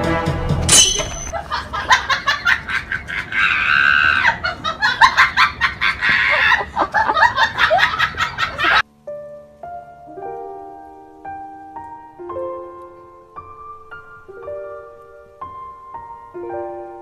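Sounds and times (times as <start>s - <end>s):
high-pitched shrieking laughter: 1.3s - 8.8s
soft piano notes: 8.9s - 17.0s.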